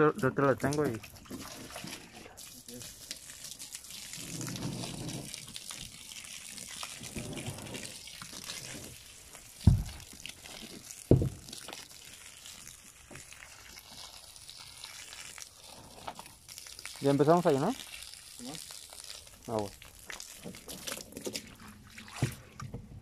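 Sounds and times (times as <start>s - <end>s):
water running from a hose into a tub: 0.0s - 23.0s
loud thumps: 9.6s - 10.0s, 11.1s - 11.4s.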